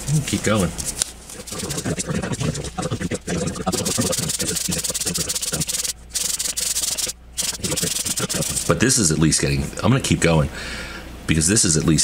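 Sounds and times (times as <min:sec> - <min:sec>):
metal rubbing on sandpaper: 0:01.3 - 0:08.8.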